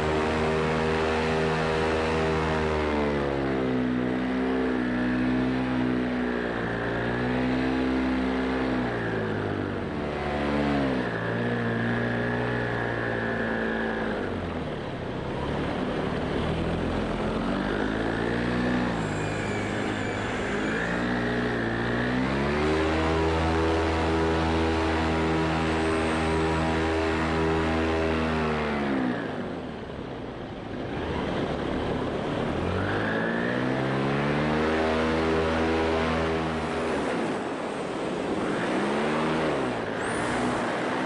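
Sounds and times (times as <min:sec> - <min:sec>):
paramotor engine and propeller: 0:00.0 - 0:41.0.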